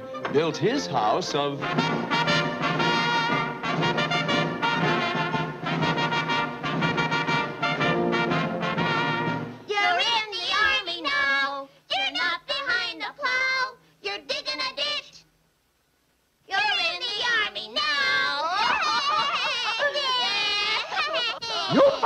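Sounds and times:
orchestral brass music: 0.0s - 9.6s
cartoon character voices: 16.8s - 22.0s.

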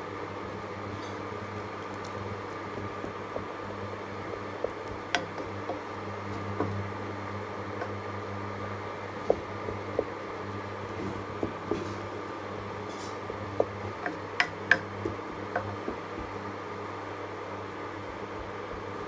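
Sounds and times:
steady low hum: 0.0s - 19.0s
wooden spoon stirring in water: 0.9s - 8.2s, 9.1s - 16.6s
spoon knocking against metal pot: 13.6s - 16.0s.

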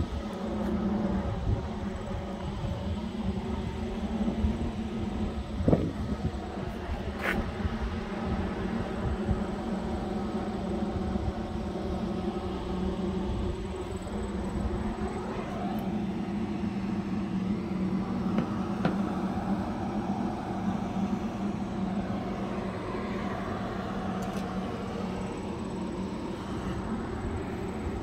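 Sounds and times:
engine drone: 0.0s - 28.0s.

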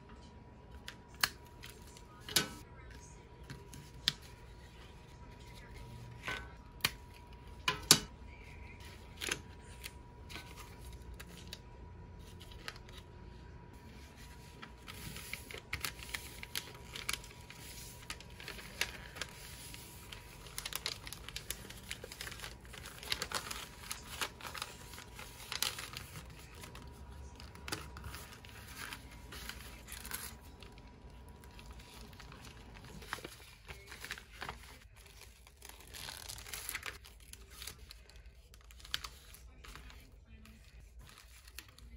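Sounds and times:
tissue paper crinkling: 13.8s - 41.9s.

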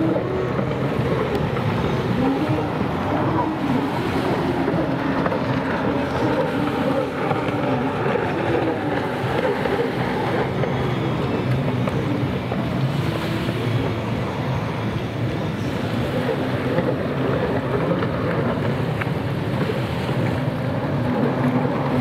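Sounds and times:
jet ski engines whining: 0.0s - 22.0s.

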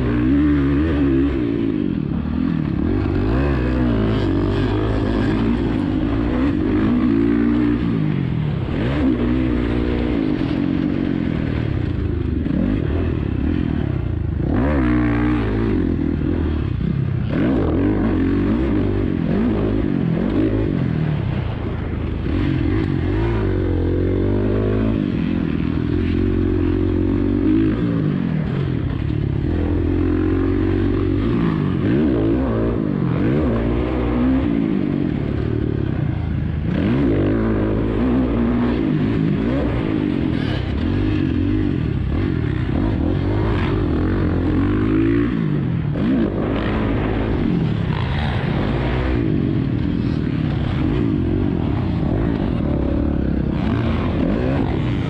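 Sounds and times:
dirt bike engine revving: 0.0s - 55.0s.

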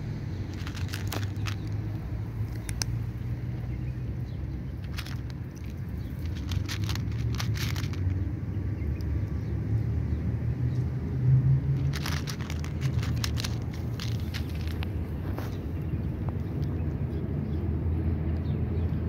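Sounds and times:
cat crunching dry kibble: 0.4s - 8.3s, 11.6s - 16.9s.

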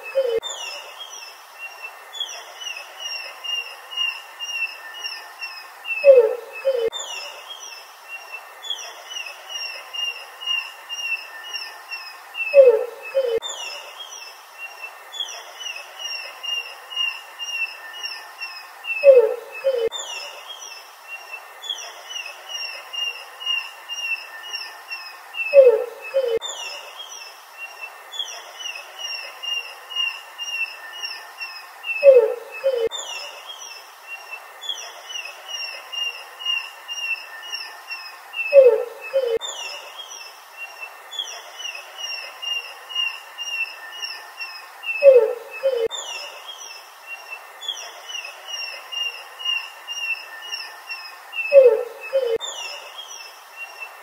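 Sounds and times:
low falling animal calls: 51.4s - 52.4s.

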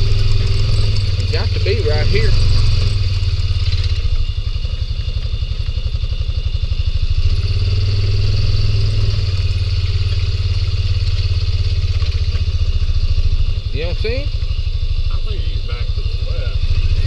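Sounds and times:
faint high whine: 0.0s - 17.0s
vehicle engine running at low revs: 0.0s - 17.0s.

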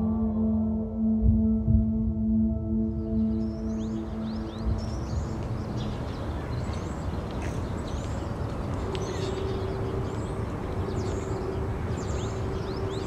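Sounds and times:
low hum: 0.0s - 5.8s
low rumble: 0.0s - 5.8s
small birds chirping: 3.0s - 13.0s.

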